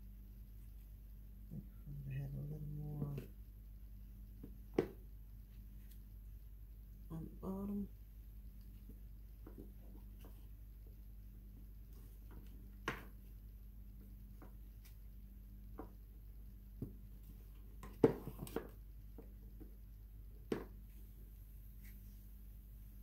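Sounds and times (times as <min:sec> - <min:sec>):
faint steady hum: 0:00.0 - 0:23.0
soaps knocking and tapping: 0:04.4 - 0:05.1, 0:09.4 - 0:10.4, 0:12.0 - 0:13.2, 0:15.6 - 0:16.0, 0:16.8 - 0:17.1, 0:17.8 - 0:19.8, 0:20.4 - 0:20.8.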